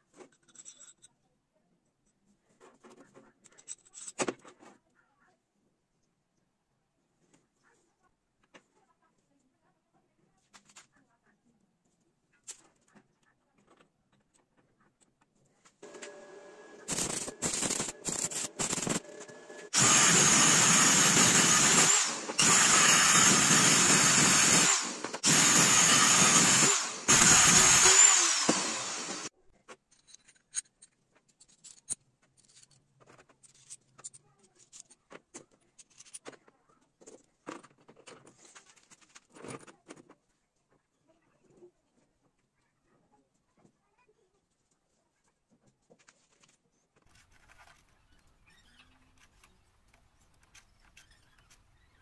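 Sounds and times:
power tool bursts: 15.8s - 29.3s.

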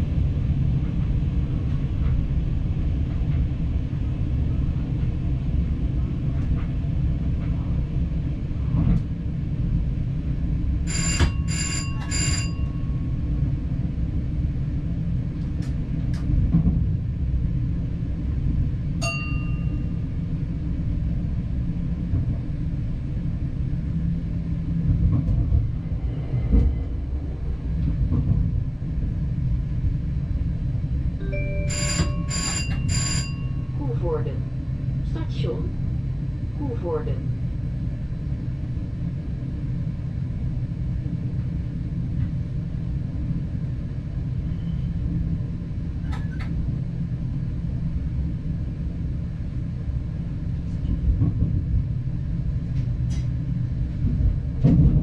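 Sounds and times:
diesel train rumble: 0.0s - 55.0s
bell rings: 10.9s - 12.8s, 19.0s - 19.8s, 31.2s - 33.8s.

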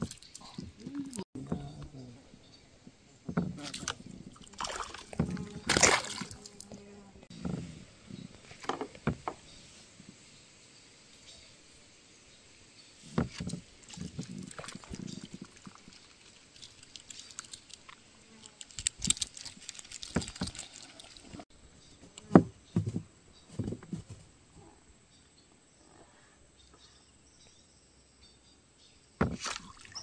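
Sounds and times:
water splashing: 3.3s - 6.8s, 13.3s - 21.4s, 29.2s - 30.0s.

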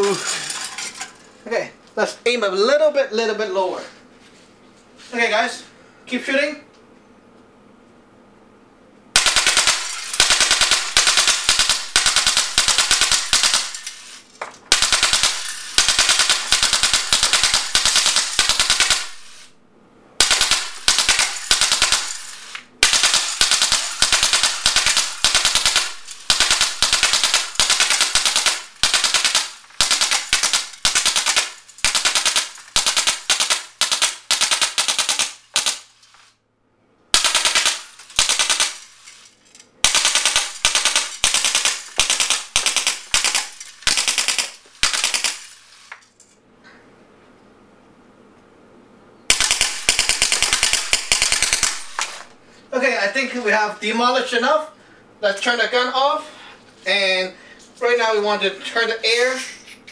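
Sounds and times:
pellets striking tin cans: 0.0s - 1.2s
air gun firing rapid bursts: 9.2s - 19.6s, 20.2s - 36.0s, 37.1s - 39.1s, 39.8s - 45.7s, 49.3s - 52.1s.

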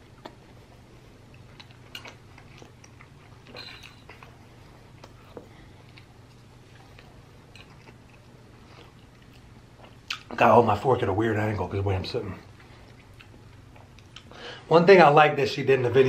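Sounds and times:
person chewing: 0.0s - 10.4s, 12.5s - 14.4s
steady low hum: 0.0s - 16.0s.

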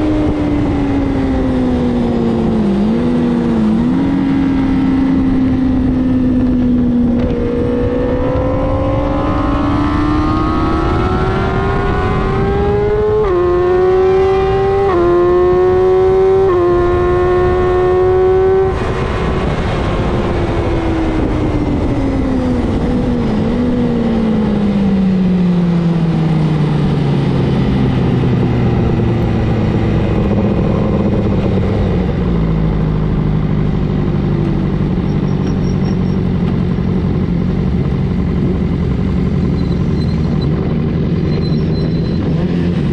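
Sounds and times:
wind rush: 0.0s - 25.3s
motorcycle engine revving: 0.0s - 42.9s.

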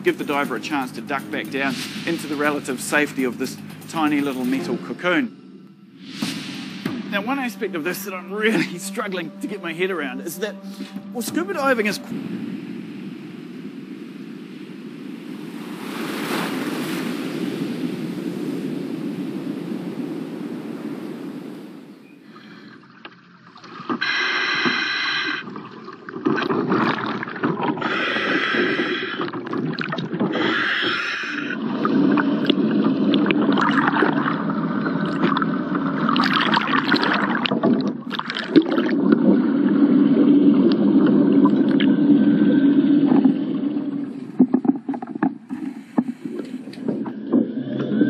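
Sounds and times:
bubbles rushing underwater: 0.0s - 5.3s, 22.2s - 48.0s
low steady hum: 0.0s - 48.0s
buzzy breaths through regulator: 10.6s - 11.2s, 23.9s - 25.7s, 26.3s - 33.2s, 41.7s - 48.0s.

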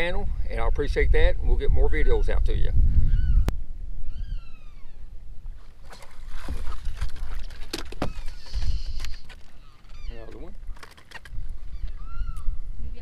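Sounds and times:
water slapping around boat: 5.6s - 9.9s
bird falling call: 7.9s - 12.6s.

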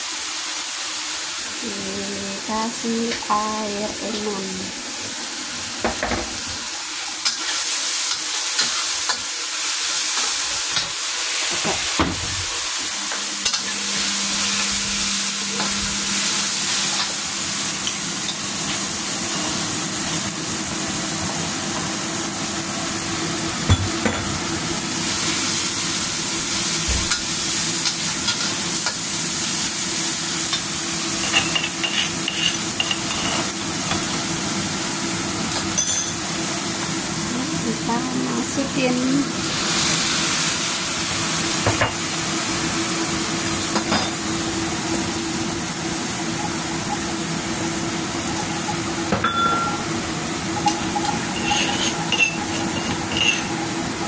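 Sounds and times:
spice paste sizzling in oil: 6.6s - 23.7s, 24.5s - 49.1s, 49.7s - 54.0s
metal spatula scraping pan: 31.3s - 33.5s, 50.7s - 53.5s.

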